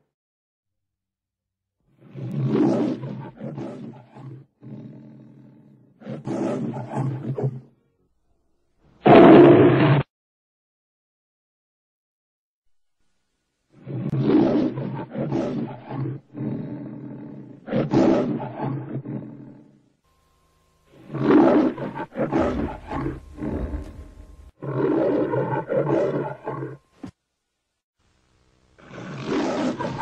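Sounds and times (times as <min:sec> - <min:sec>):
high-pitched lion roars: 0:02.0 - 0:07.8, 0:09.0 - 0:10.1, 0:13.8 - 0:19.9, 0:20.9 - 0:27.1, 0:28.8 - 0:30.0.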